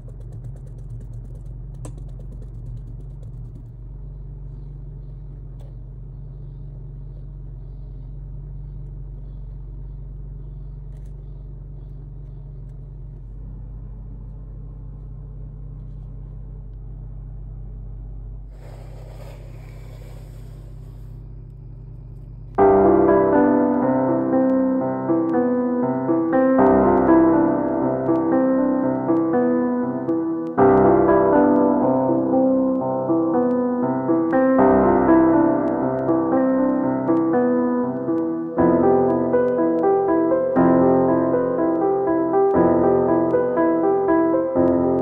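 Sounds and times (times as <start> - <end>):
low rumble: 0.0 - 45.0
loud hiss: 18.5 - 21.2.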